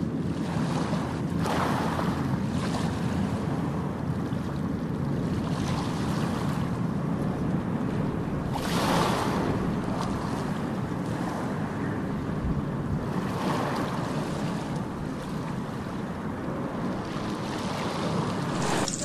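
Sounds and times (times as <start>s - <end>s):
wave breaking and washing in: 0.0s - 19.0s
ocean waves rushing: 13.0s - 19.0s.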